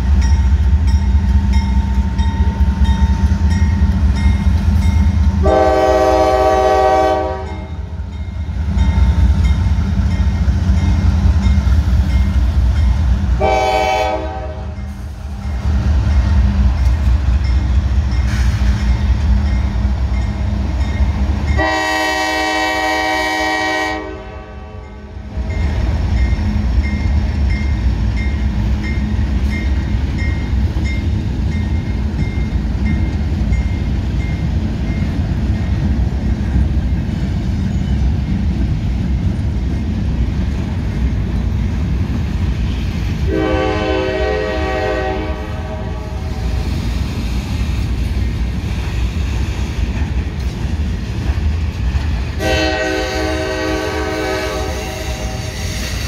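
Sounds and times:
train wheels rumbling on rails: 0.0s - 56.0s
locomotive air horn chord: 5.4s - 7.7s, 13.4s - 14.8s, 21.6s - 25.0s, 43.3s - 46.5s, 52.4s - 55.6s.

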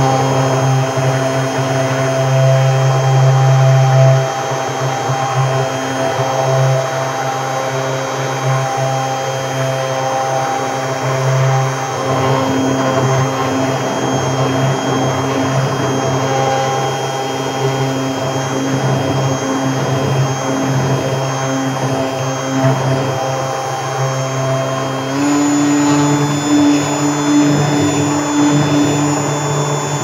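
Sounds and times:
stick blender motor whining: 8.3s - 30.0s.

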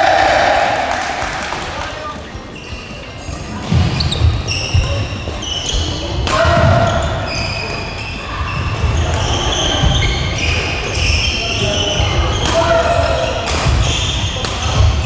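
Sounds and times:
shoes squeaking on wooden floor: 2.4s - 12.4s.

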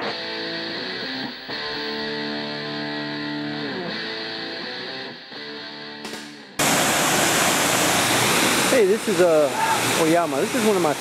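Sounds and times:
guitar music with sliding notes: 0.0s - 6.7s.

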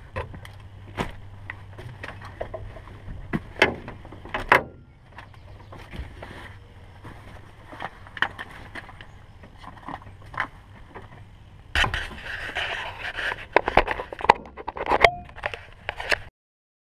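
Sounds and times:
camera scraping and rubbing: 11.7s - 16.3s.

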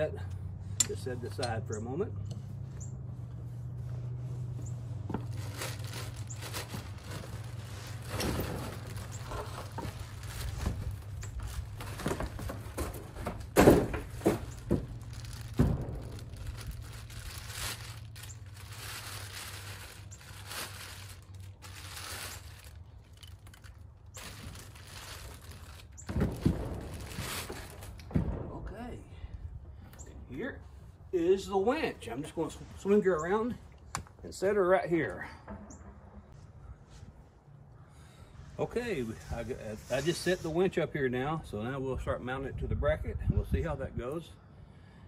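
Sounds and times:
plastic wrapping rustling: 4.8s - 28.1s
heavy thunks: 8.0s - 17.4s, 26.0s - 29.8s.

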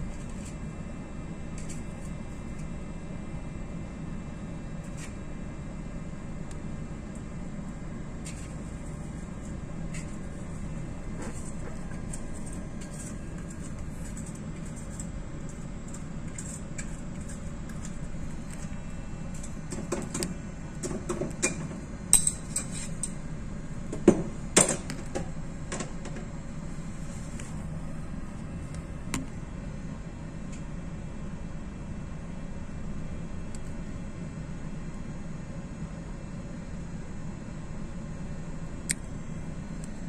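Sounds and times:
ship engine hum: 7.6s - 30.2s
sharp clinks and knocks: 21.4s - 23.2s.

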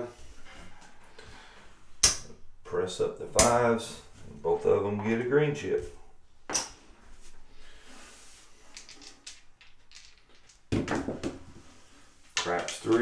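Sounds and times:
dice tumbling on table: 8.6s - 11.6s, 12.4s - 13.0s
casino chips clicking: 8.7s - 10.7s.

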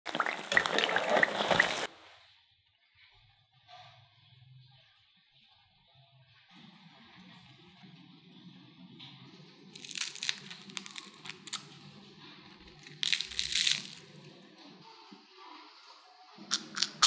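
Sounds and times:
fried snack crunching: 9.8s - 11.7s, 12.6s - 14.2s, 16.5s - 17.0s.

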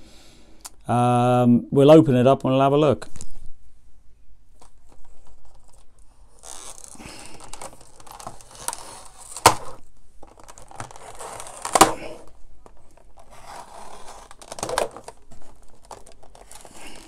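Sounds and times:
plastic cracking: 4.5s - 17.0s
plastic packaging crinkling: 4.6s - 17.0s.

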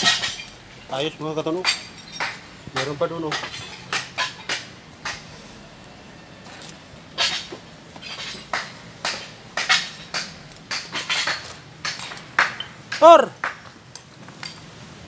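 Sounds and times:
hard debris clinking: 0.0s - 5.3s, 7.2s - 13.2s.

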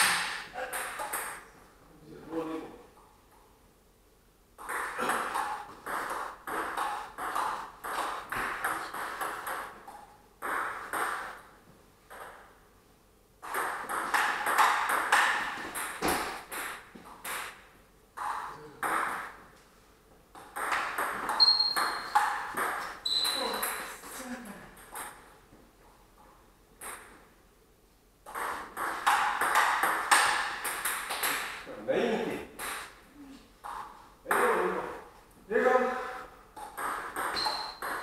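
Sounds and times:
shoe squeak: 21.3s - 22.2s, 23.0s - 23.7s, 37.3s - 38.0s.

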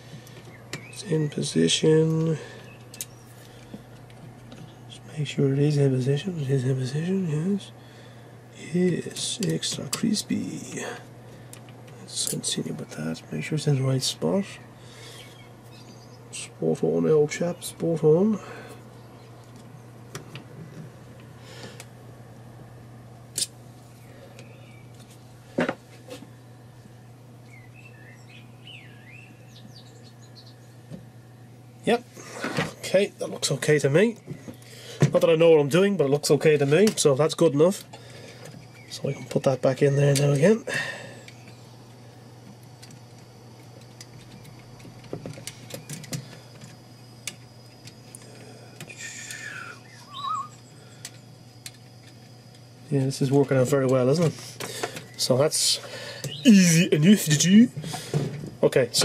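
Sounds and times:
steady low hum: 0.0s - 59.0s
faint bird chirping: 0.2s - 3.6s, 12.5s - 20.0s, 23.9s - 25.0s, 26.3s - 30.9s, 38.0s - 42.1s, 48.2s - 51.4s, 54.8s - 57.6s
short wavering squeak: 49.9s - 50.6s.

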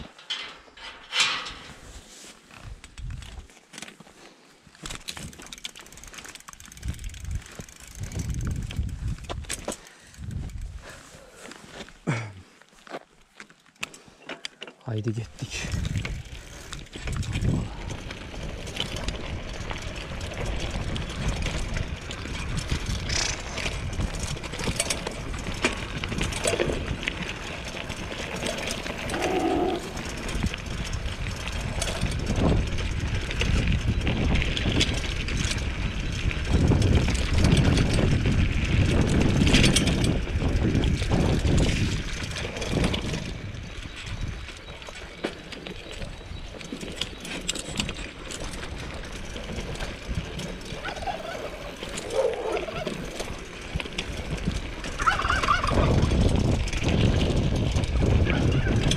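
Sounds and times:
bike rattling on bumps: 0.0s - 12.3s, 15.1s - 58.9s
wind rumble on microphone: 0.8s - 3.5s, 6.8s - 11.3s, 15.4s - 45.1s, 47.7s - 58.9s
tyres crunching over stones: 1.6s - 23.0s, 23.6s - 39.5s.

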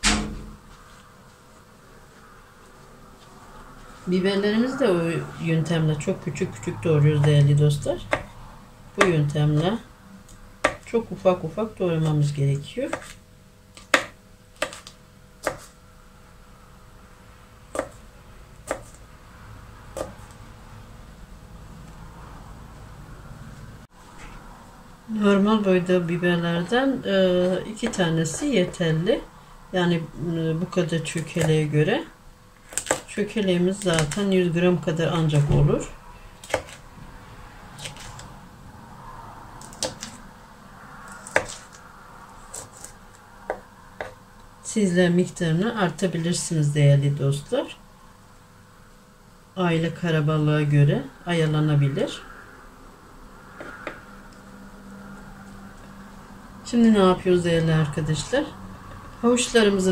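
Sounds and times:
knife chopping on plastic board: 8.1s - 8.4s, 9.0s - 9.2s, 10.6s - 10.9s, 12.9s - 13.2s, 13.8s - 15.7s, 17.7s - 18.0s, 18.6s - 19.0s, 19.9s - 20.4s, 27.8s - 28.8s, 32.6s - 33.1s, 36.4s - 36.8s, 41.2s - 41.7s, 42.5s - 44.2s, 53.6s - 54.0s.

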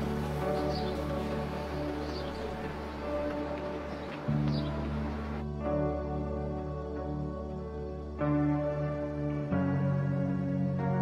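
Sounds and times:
ambient new-age music: 0.0s - 11.0s.

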